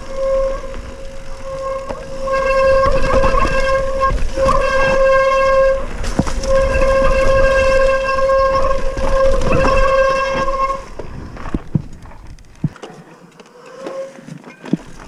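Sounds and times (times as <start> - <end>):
bike disc brakes squealing: 0.0 - 11.0
bike rattling on rough ground: 0.0 - 13.3, 14.2 - 15.0.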